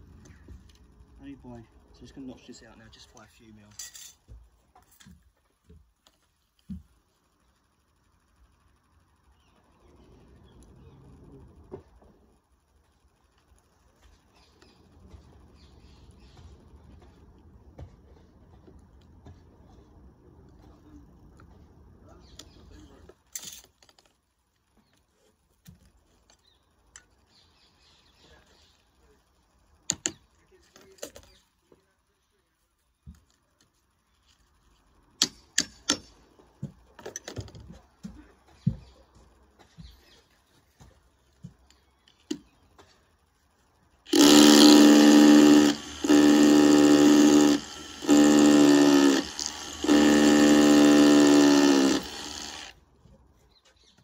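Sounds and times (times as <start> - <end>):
power tool cutting: 44.1 - 52.8.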